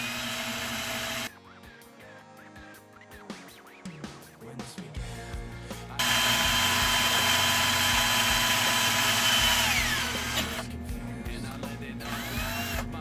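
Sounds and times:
cordless drill whining: 0.0s - 1.3s, 6.0s - 10.7s, 12.0s - 13.0s
drill bit cutting sheet metal: 0.0s - 1.3s, 6.0s - 10.7s, 12.0s - 13.0s.

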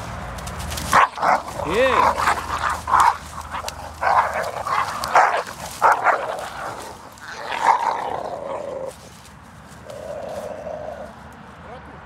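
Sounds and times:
dogs barking and snarling: 0.0s - 11.4s.

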